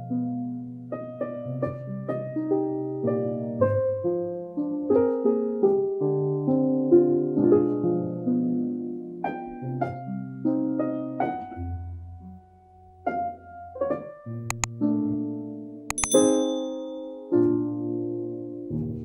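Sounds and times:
sharp clicks: 15.9 - 16.8.

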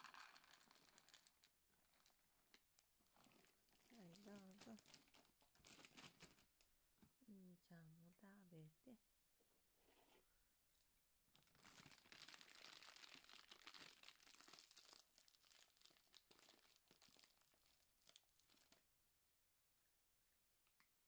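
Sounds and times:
cat crunching dry kibble: 0.0 - 6.6, 11.4 - 18.8.

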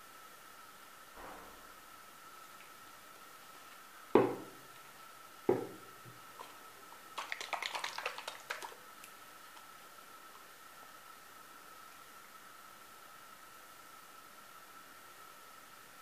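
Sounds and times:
faint high whine: 0.0 - 6.0
objects knocking on hard surface: 4.2 - 4.6, 5.5 - 5.8.

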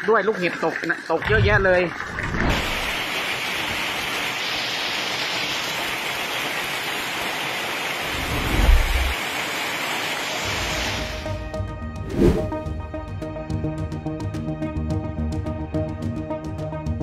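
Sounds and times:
rain and hail pelting ground: 1.4 - 11.0.

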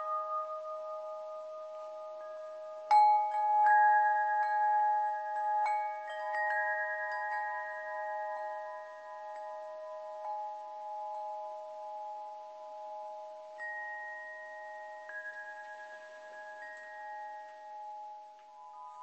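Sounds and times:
metal chimes ringing: 0.0 - 19.0.

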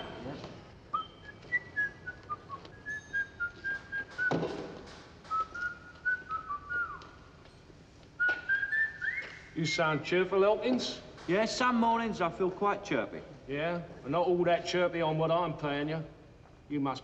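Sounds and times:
man whistling a tune: 0.9 - 4.5, 5.3 - 7.2, 8.2 - 9.6
knock: 4.2 - 5.0.

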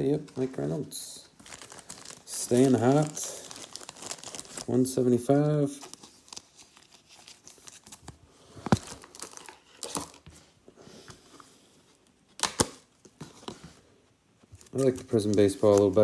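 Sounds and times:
cards and plastic sleeve rustling: 0.0 - 10.6, 11.3 - 16.0.

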